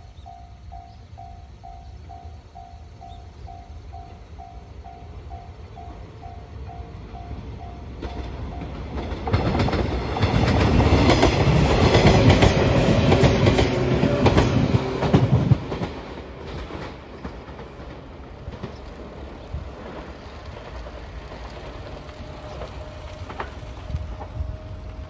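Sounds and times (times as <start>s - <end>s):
train wheels clattering over rails: 7.0s - 25.0s.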